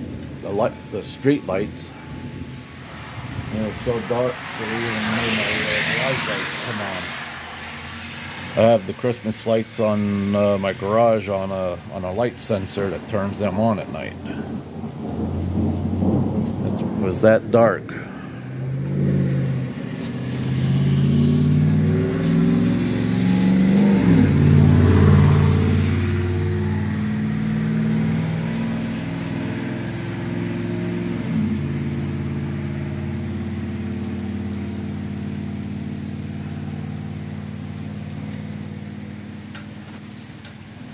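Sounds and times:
rolling thunder rumble: 0:00.0 - 0:06.4, 0:13.2 - 0:22.8
thunder clap: 0:01.6 - 0:06.5, 0:13.8 - 0:21.7.

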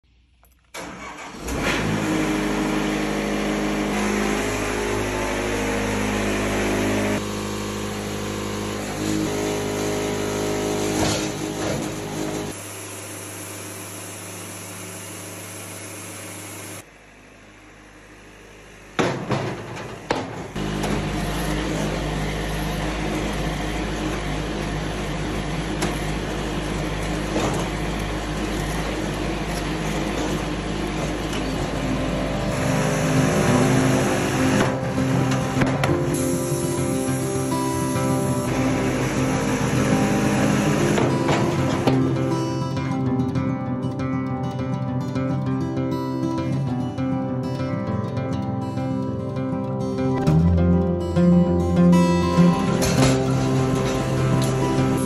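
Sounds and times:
engine starting and running: 0:00.2 - 0:44.0, 0:50.2 - 0:55.0
loud knocks: 0:19.0 - 0:20.6.

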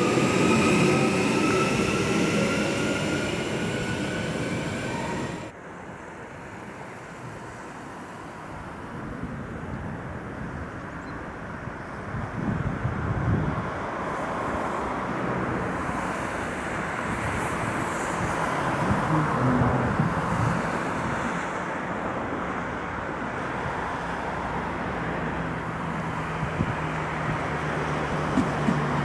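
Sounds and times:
train running rumble: 0:27.4 - 0:29.0.

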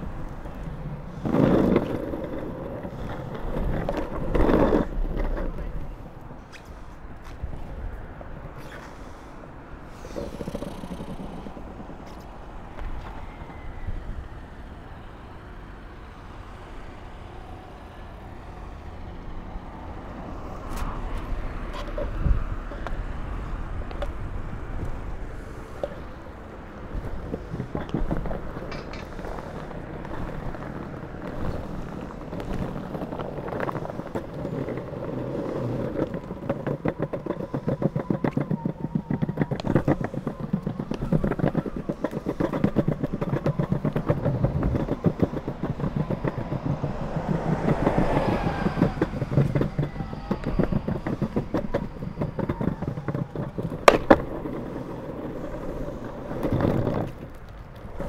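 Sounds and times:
longboard wheels rumbling on pavement: 0:00.0 - 0:58.0
passing vehicle: 0:00.0 - 0:58.0
wheels ticking over joints: 0:00.0 - 0:58.0.

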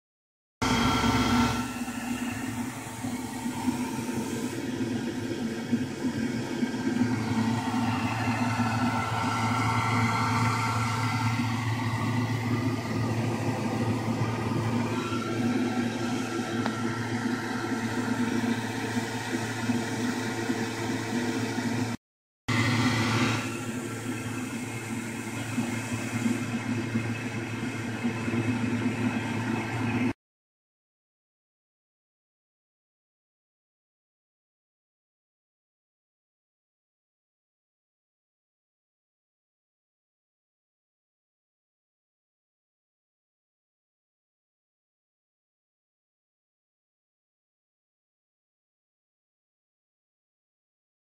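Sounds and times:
blower whirring hum: 0:00.6 - 0:30.2.

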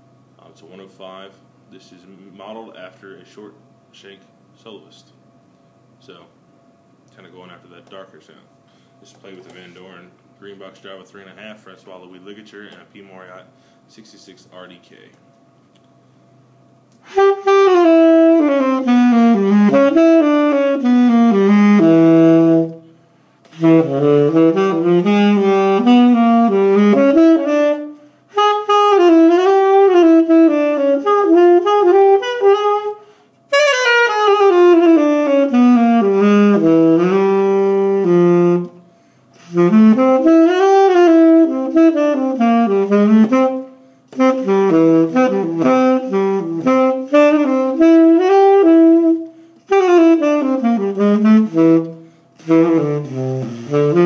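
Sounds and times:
tenor saxophone jazz phrases: 0:17.0 - 0:54.0.

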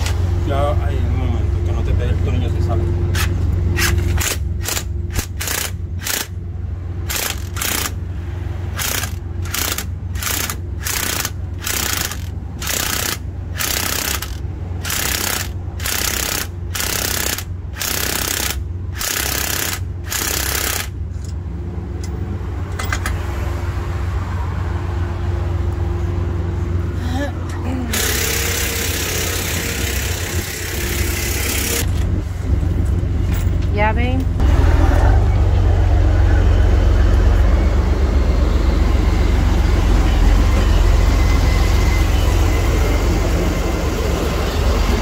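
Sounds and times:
steady low hum: 0:00.0 - 0:45.0
impact wrench hammering: 0:03.2 - 0:06.4, 0:07.1 - 0:08.0, 0:08.8 - 0:21.0.

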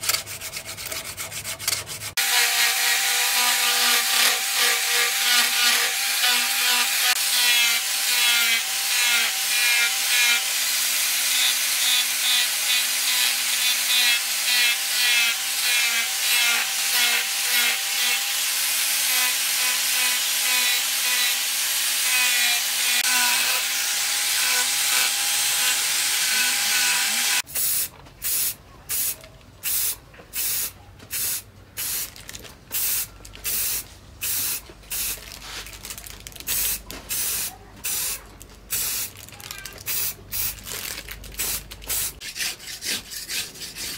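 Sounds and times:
angle grinder sanding steel: 0:00.0 - 0:27.4.

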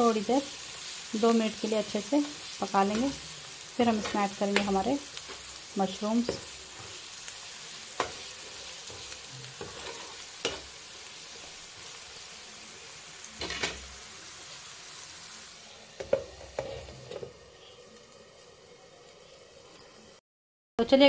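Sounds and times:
chicken sizzling in oil: 0:00.0 - 0:20.2
metal spatula scraping a pan: 0:06.2 - 0:12.3, 0:13.4 - 0:14.0, 0:15.9 - 0:17.3.

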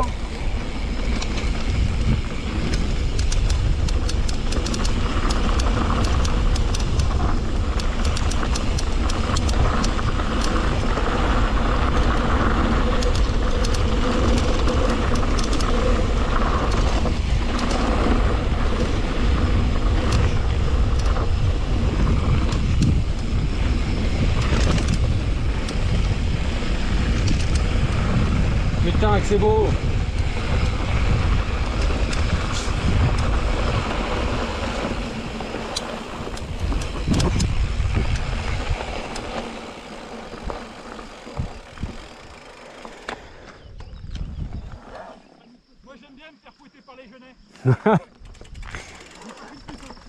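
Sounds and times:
wind rumbling on microphone: 0:00.0 - 0:45.5, 0:48.2 - 0:50.0.

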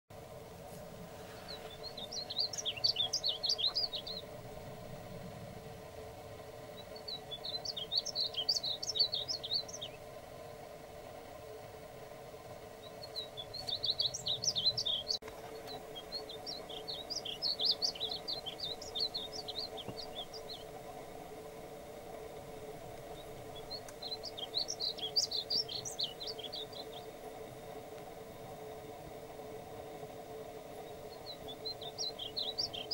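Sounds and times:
bird singing high warbling notes: 0:01.4 - 0:04.3, 0:06.8 - 0:10.0, 0:12.8 - 0:20.7, 0:23.1 - 0:27.1, 0:30.8 - 0:32.9.

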